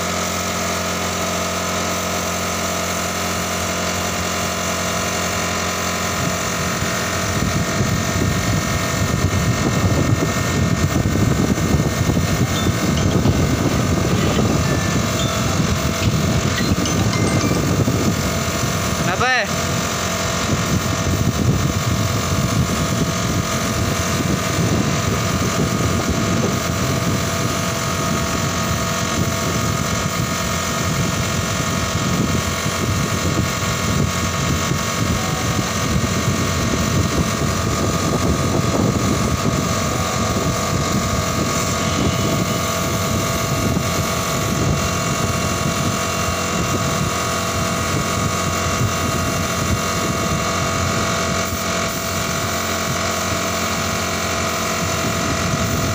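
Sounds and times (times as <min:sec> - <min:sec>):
air compressor running: 0:00.0 - 0:55.9
paint spray gun hissing: 0:11.1 - 0:19.4, 0:51.4 - 0:53.8.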